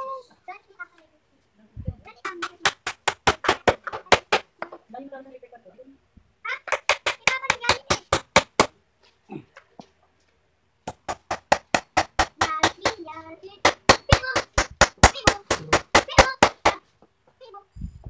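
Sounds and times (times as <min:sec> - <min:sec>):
hammer striking wood: 0:02.2 - 0:04.8, 0:06.6 - 0:08.8, 0:10.8 - 0:16.8.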